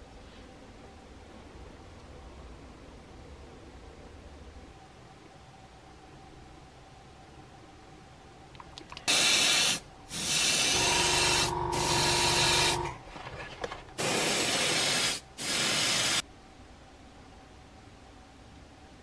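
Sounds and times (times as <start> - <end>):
airbrush spraying hiss: 9.1 - 12.9, 14.0 - 16.2
steady tone: 10.7 - 13.0
low hum: 10.8 - 13.4.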